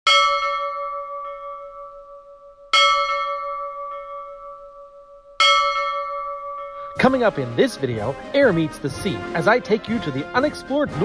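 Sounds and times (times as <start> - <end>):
bell ringing: 0.1 - 7.4.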